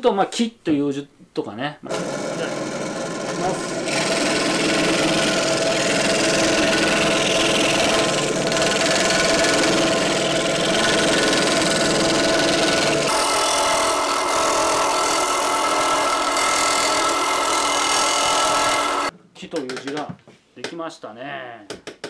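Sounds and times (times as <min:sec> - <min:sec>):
scroll saw cutting wood: 0:01.9 - 0:19.1.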